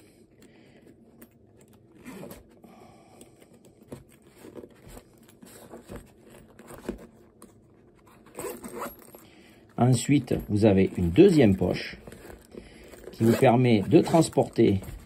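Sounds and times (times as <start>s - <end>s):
zipper rasping: 1.2s - 2.6s, 8.0s - 9.2s, 10.9s - 15.0s.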